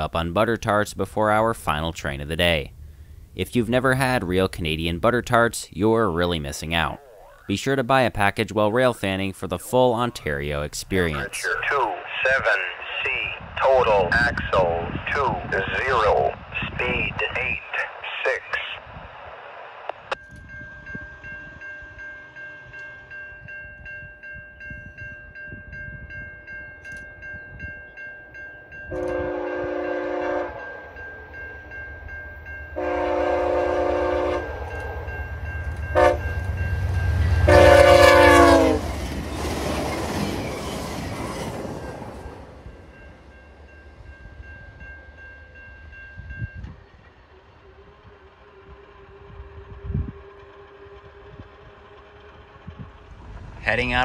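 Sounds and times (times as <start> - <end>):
crossing bell ringing: 20.2 - 54.0
train rushing past: 28.6 - 54.0
train horn blasts: 28.9 - 31.0, 32.7 - 35.2, 35.8 - 38.9, 47.3 - 51.8.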